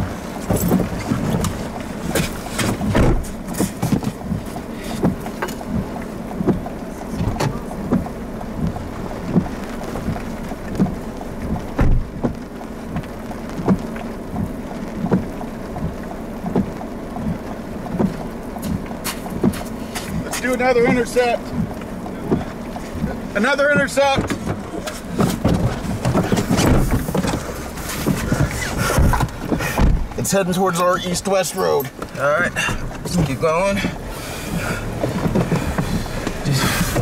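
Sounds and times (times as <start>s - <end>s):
wind buffeting microphone: 24.2s - 30.2s.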